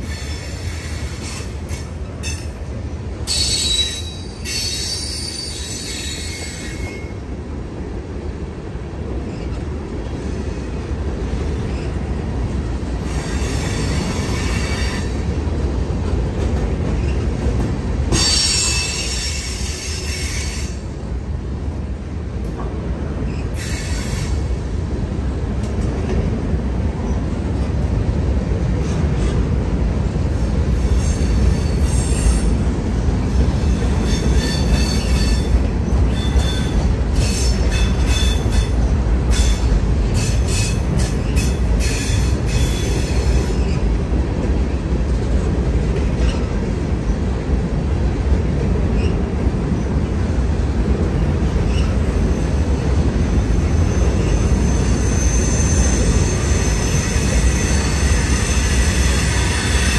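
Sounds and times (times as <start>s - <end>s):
train wheels squealing: 0.0s - 2.6s, 3.2s - 7.2s, 9.3s - 10.7s, 11.6s - 12.0s, 13.0s - 15.3s, 16.9s - 17.4s, 18.1s - 20.9s, 23.1s - 24.6s, 30.6s - 32.6s, 33.2s - 43.9s, 48.9s - 50.2s, 51.1s - 59.9s
freight train rumbling: 0.0s - 59.9s.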